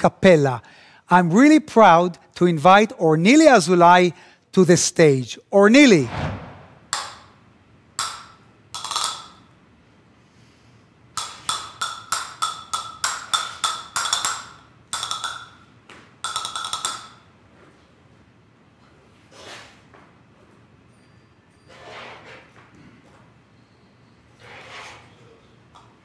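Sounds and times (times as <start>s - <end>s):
castanets clacking: 8.0s - 9.5s, 11.2s - 15.6s, 16.2s - 17.2s.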